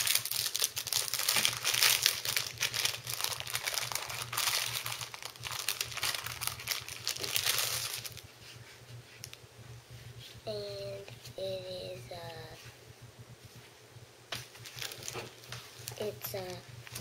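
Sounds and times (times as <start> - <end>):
plastic bag crinkling: 0.0 - 8.3, 14.5 - 17.0.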